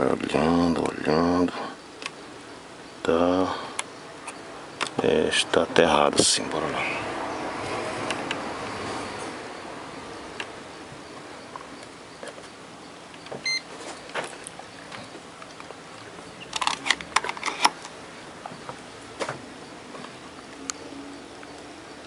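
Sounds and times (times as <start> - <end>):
multimeter beep: 13.2 - 13.7
clicks and knocks of test gear: 16.5 - 18.0.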